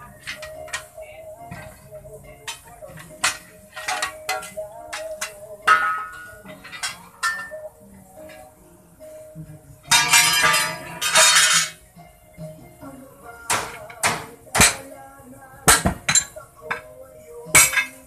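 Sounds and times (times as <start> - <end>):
ringing metal strike: 3.2 - 7.7.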